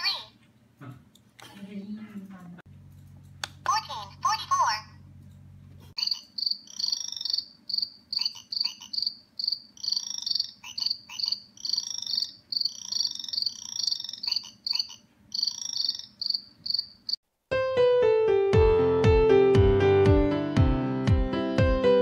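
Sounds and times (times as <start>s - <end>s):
high-pitched pulsed chirping: 6.0s - 17.2s
piano music: 17.5s - 22.0s.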